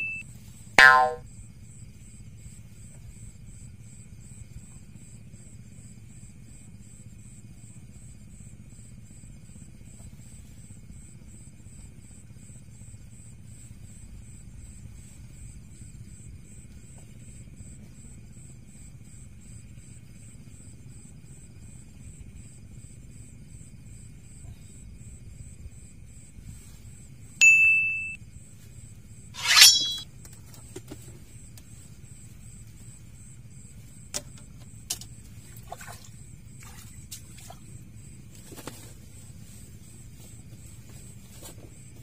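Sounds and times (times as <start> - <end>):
bite alarm ding: 0.0 - 0.2, 0.8 - 1.2, 27.4 - 28.2
night insects chirping: 0.0 - 30.4, 31.1 - 42.0.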